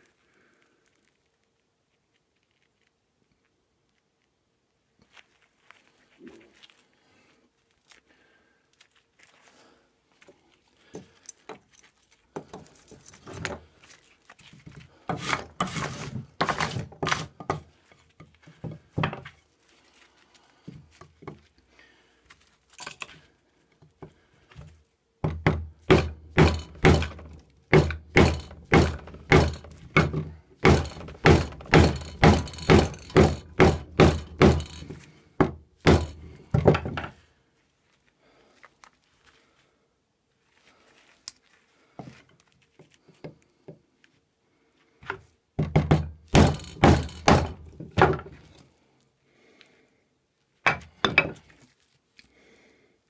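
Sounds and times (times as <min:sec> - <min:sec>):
stick knocking knife through wood: 0:15.1 - 0:17.7, 0:25.2 - 0:37.1, 0:45.0 - 0:48.3.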